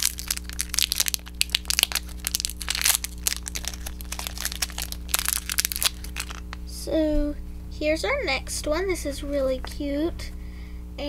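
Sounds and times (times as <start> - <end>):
packaging crinkling: 0.0 - 6.6.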